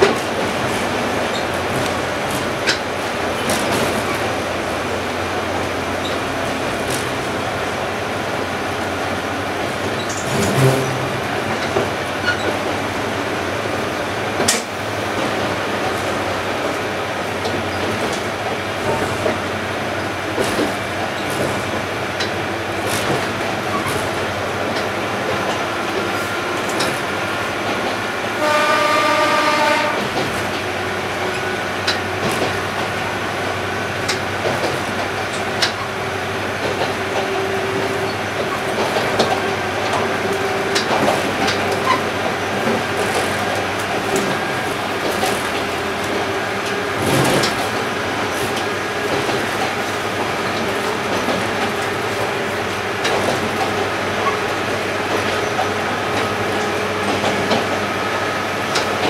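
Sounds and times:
train interior running noise: 0.0s - 59.0s
wheels clacking over rail joints: 0.0s - 59.0s
train horn blast: 10.4s - 11.3s, 28.4s - 30.2s.

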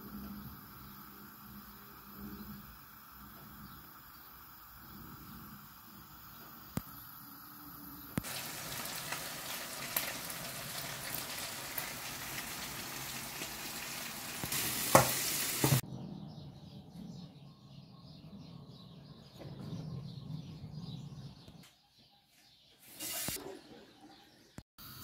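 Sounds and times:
food frying in hot oil: 8.0s - 15.8s.

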